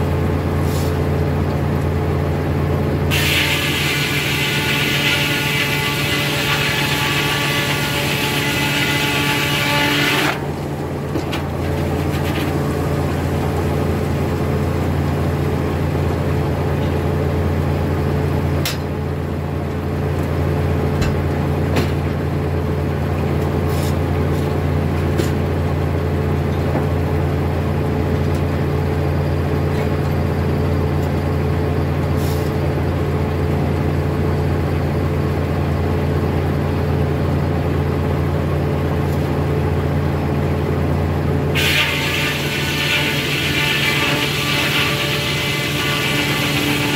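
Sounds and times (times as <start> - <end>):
circular saw blade droning: 3.1 - 10.6, 41.5 - 46.9.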